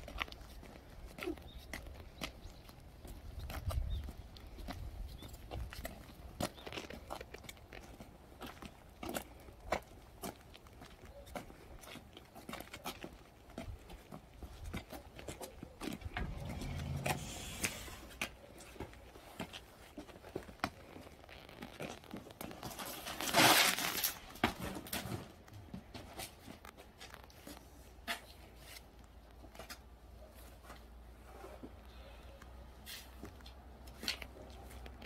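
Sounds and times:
footsteps on concrete: 0.0 - 23.0
sliding glass door opening: 16.2 - 18.2.

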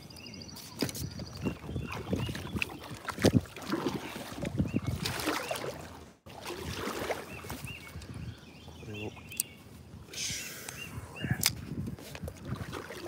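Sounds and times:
water sloshing against boat hull: 0.5 - 8.1, 11.9 - 13.0.

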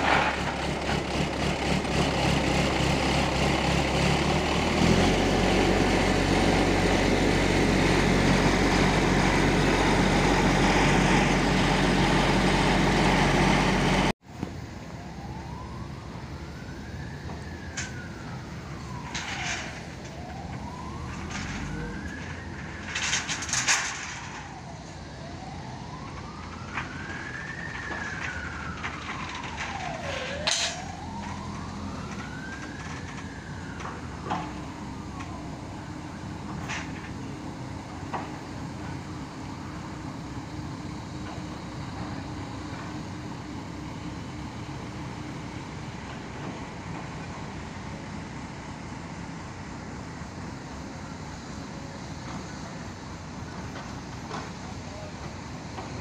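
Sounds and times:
crane engine running: 0.0 - 56.0
wailing siren: 0.0 - 56.0.

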